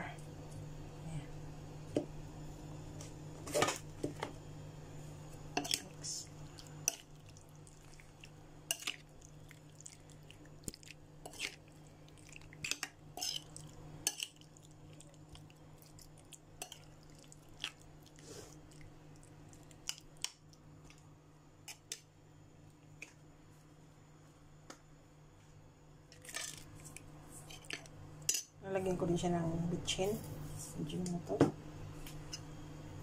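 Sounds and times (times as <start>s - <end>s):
faint low hum: 0.0s - 33.0s
wet squishing of stirred meat: 5.6s - 21.0s.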